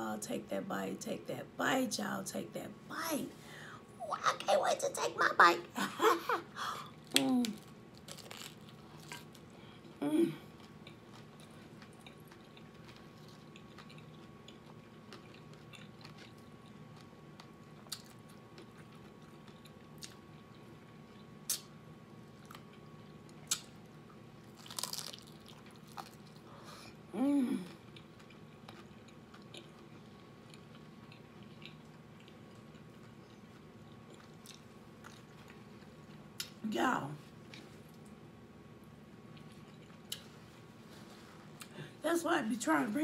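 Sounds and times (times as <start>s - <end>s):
chewing crunchy taco: 6.8s - 36.6s, 39.0s - 41.8s
person humming mm: 10.0s - 10.5s, 27.1s - 27.8s.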